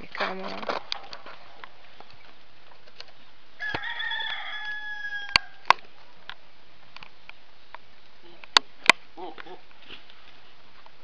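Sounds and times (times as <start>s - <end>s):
rooster crowing: 3.6s - 5.6s.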